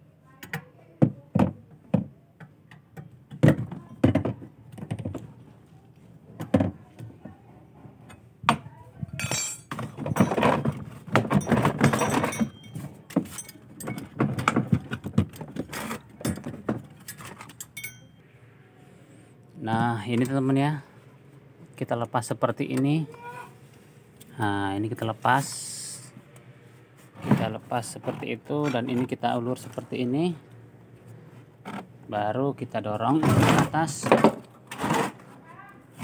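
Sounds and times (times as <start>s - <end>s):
metal tool clinking on bolts: 9.2s - 10.6s, 11.4s - 14.2s, 17.1s - 18.2s.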